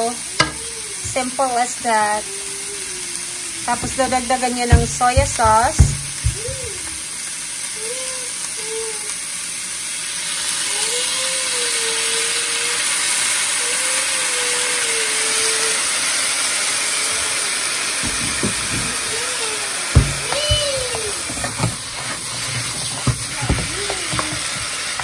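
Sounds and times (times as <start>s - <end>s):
food sizzling in a wok: 0.0s - 25.0s
wooden spoon scraping: 3.7s - 6.6s, 20.0s - 25.0s
soft knocks: 3.7s - 7.0s, 18.0s - 19.1s, 20.0s - 24.7s.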